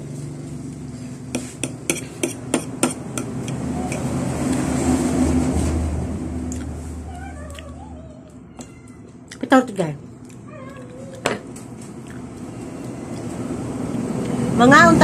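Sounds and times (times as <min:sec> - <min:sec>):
fork scraping plate: 0:01.3 - 0:04.7.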